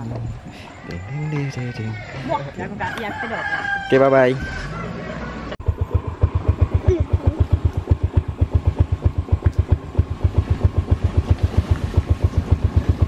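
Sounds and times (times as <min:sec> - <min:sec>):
motorcycle engine idling: 0:05.6 - 0:13.0.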